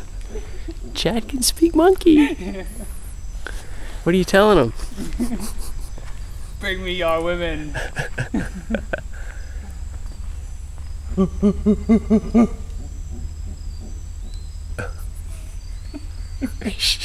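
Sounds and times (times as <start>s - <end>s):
man imitating monkey calls: 0.0s - 3.2s, 11.0s - 17.0s
high insect buzz: 0.0s - 17.0s.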